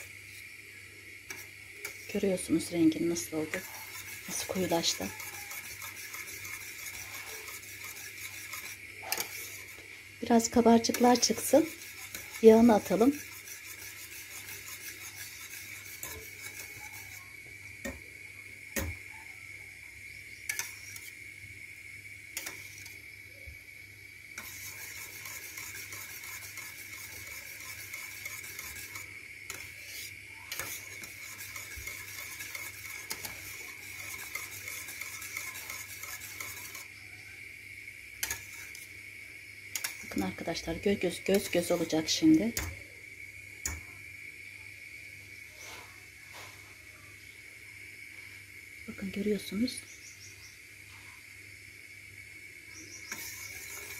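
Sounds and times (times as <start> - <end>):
whisk scraping swish in pot: 1.3 - 18.0, 20.5 - 21.2, 22.4 - 23.0, 24.4 - 37.0, 38.2 - 38.9, 39.7 - 42.7, 53.0 - 53.9
whisk clinking on metal pot: 3.4 - 9.8, 10.4 - 17.2, 24.4 - 36.9, 39.8 - 40.2, 53.1 - 53.9.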